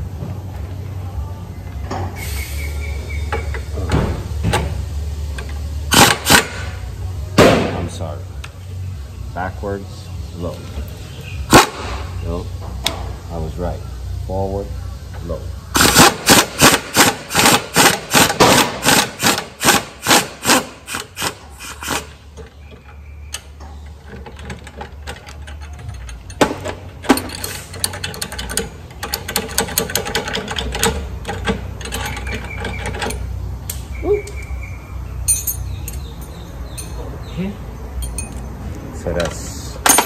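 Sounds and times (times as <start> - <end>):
wrench ratcheting: 27.0 - 33.3.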